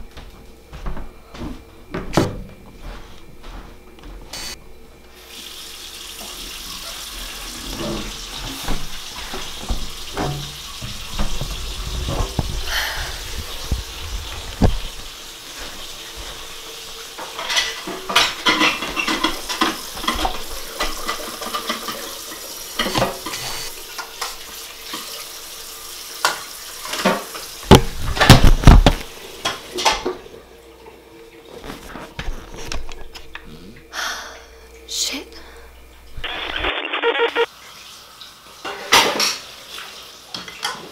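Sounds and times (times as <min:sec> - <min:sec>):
tap running into sink: 0:07.5 - 0:12.6, 0:26.2 - 0:30.2
dishes and cutlery clinking: 0:17.2 - 0:22.2.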